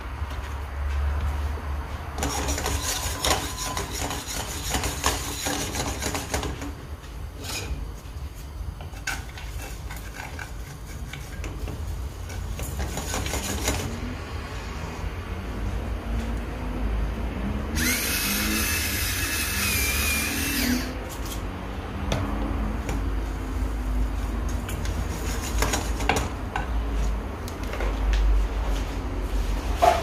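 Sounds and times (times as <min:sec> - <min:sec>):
rubbing and scraping: 0:02.2 - 0:06.4, 0:08.9 - 0:14.0, 0:24.7 - 0:26.3.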